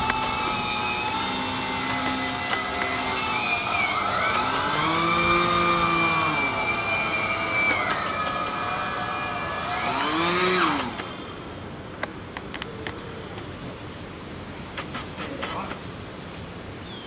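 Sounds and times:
electric motor propeller whine: 0.0 - 11.5.

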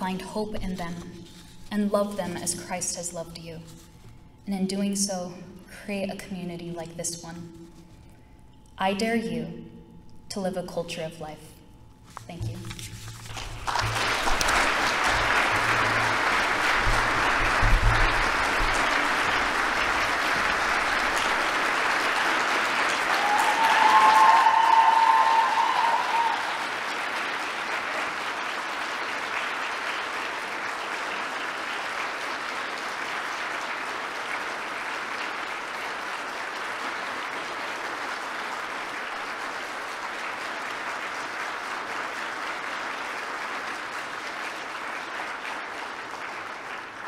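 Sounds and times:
audience applauding: 13.2 - 47.0
high cheer from crowd: 13.8 - 28.8.

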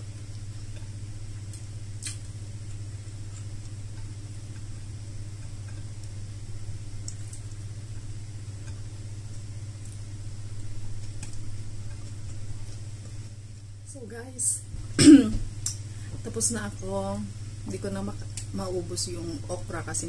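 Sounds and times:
steady low hum: 0.0 - 20.0
chewing clicks: 0.2 - 6.2, 7.0 - 13.2.

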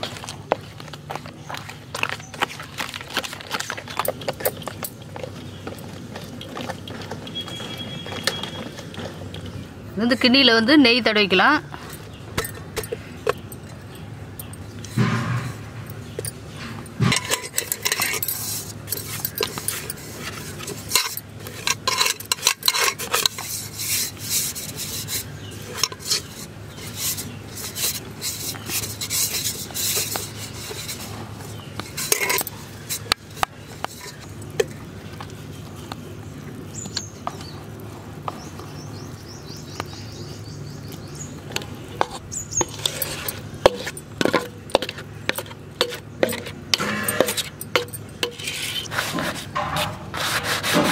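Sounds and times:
scraping and clinking of metal pot: 11.6 - 13.9, 14.8 - 34.8, 41.5 - 50.9.

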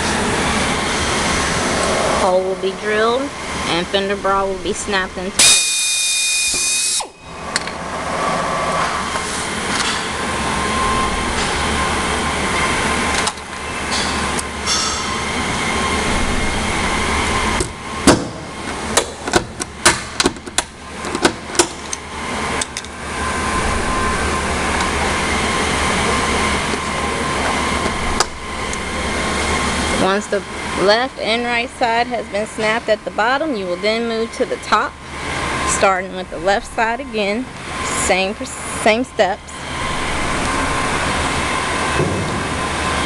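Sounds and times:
steady shop hum: 0.0 - 43.0
power drill whining: 5.4 - 7.7.

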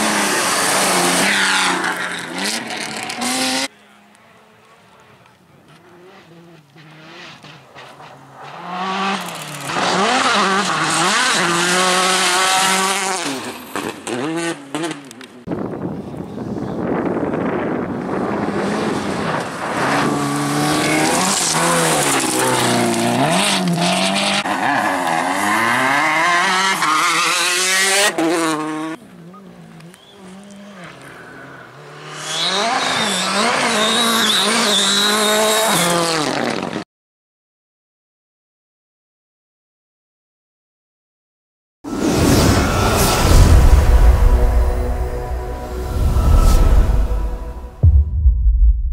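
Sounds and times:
rally car engine passing: 0.0 - 15.2, 17.4 - 36.7, 41.9 - 47.9
steady rushing noise: 41.9 - 48.9.

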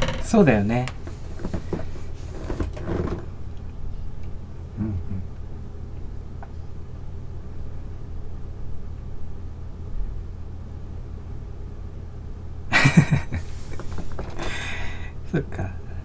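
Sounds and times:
steady low hum: 0.0 - 16.0
man laughing breathily: 12.7 - 13.8, 14.4 - 15.2.

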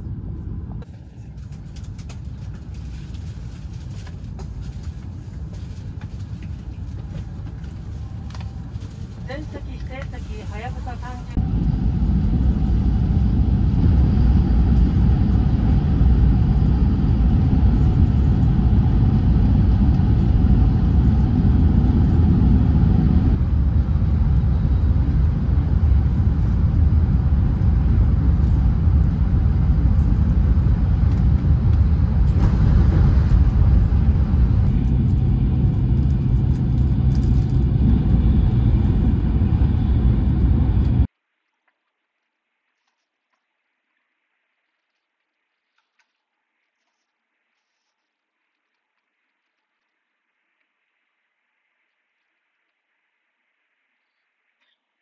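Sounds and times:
train cabin rumble and rush: 0.0 - 15.8, 16.4 - 41.1.

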